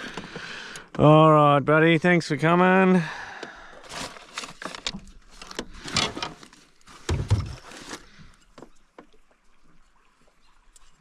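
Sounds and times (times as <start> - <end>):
rummaging rustles and clicks: 3.8 - 8.1
dull thump on boat: 7.0 - 7.7.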